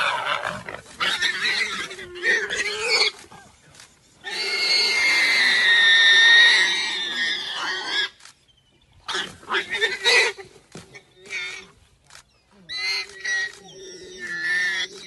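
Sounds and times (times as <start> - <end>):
warthog squealing: 12.7 - 15.0.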